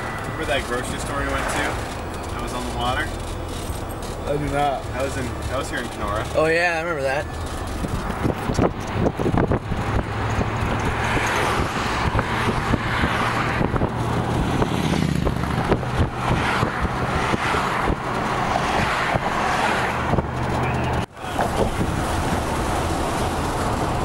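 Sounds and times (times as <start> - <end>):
vehicle engine hum: 0.0 - 24.0
tyre and wind rush: 6.3 - 24.0.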